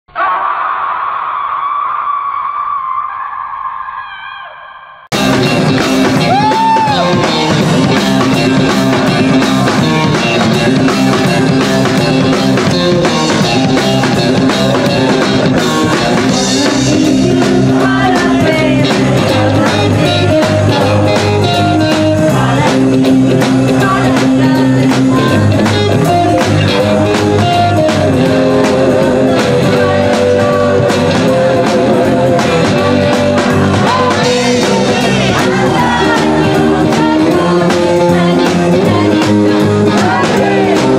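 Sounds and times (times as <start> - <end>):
rock and roll band playing: 5.1 - 40.9
woman singing: 15.6 - 40.9.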